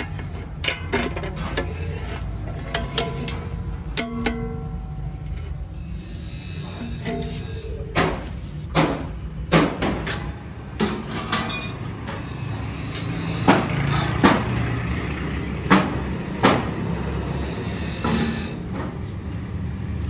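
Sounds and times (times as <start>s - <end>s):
metal parts knocking and clanking: 0.0s - 1.8s, 2.5s - 5.4s, 6.9s - 12.2s
steady low hum: 0.0s - 10.8s.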